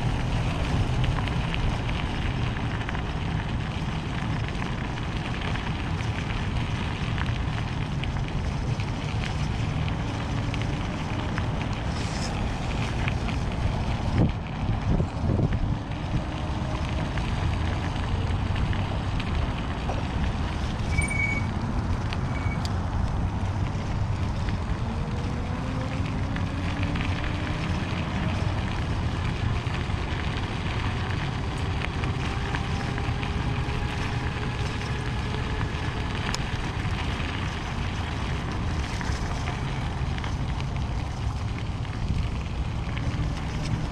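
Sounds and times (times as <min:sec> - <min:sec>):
gravel crunching and rattling: 0:00.0 - 0:43.9
tyres rolling on gravel: 0:00.0 - 0:43.9
wind on microphone: 0:08.1 - 0:43.9
faint rising whines: 0:20.0 - 0:28.6.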